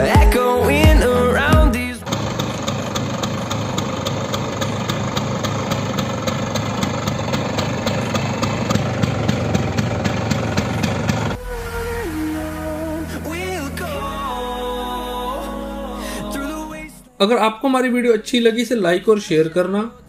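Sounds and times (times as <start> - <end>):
scooter engine idling: 0.2 - 11.6.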